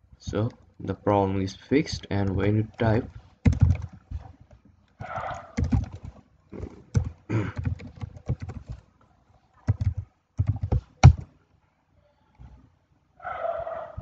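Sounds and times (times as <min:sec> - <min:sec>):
computer keyboard typing: 0:02.2 - 0:04.3, 0:05.0 - 0:08.8, 0:09.7 - 0:11.2.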